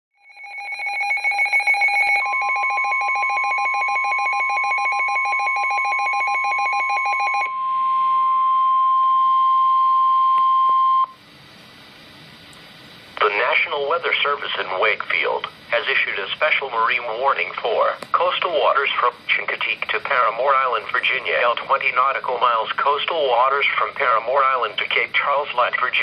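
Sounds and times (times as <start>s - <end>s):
rapidly pulsing electronic beep: 0.2s - 8.2s
steady warning alarm tone: 0.2s - 11.2s
faint hiss: 11.2s - 25.8s.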